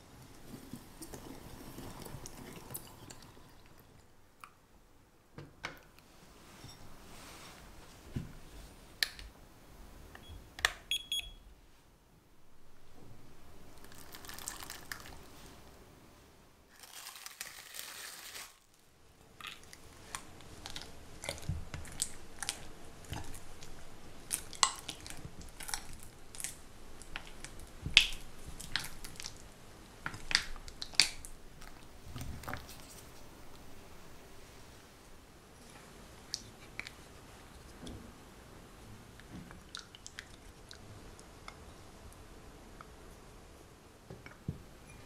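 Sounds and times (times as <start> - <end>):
plastic wrapping crinkling: 13.7 - 15.6, 16.7 - 18.9.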